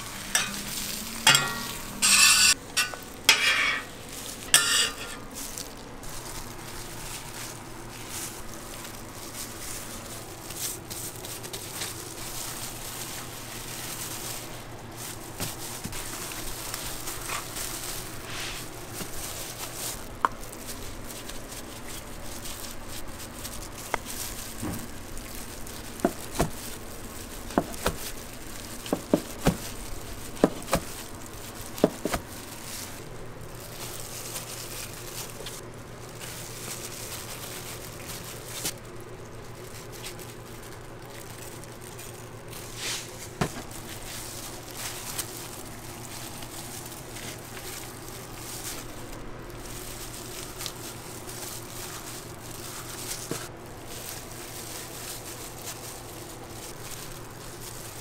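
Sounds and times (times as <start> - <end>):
faint clicks and rustles: 0.0 - 58.0
steady background hum: 0.0 - 58.0
knife cutting food rolls: 0.1 - 33.0.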